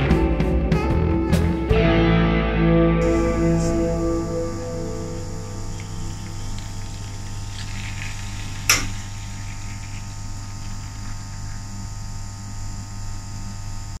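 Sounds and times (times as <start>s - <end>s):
steady low hum: 1.5s - 14.0s
moka pot crackling and sputtering: 3.0s - 14.0s
sharp click: 8.6s - 9.0s.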